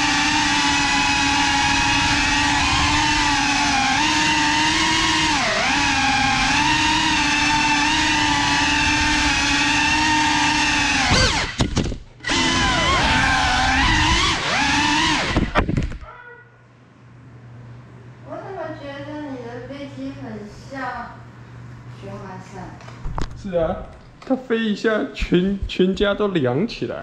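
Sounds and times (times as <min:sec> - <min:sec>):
drone motors whining: 0:00.0 - 0:16.1.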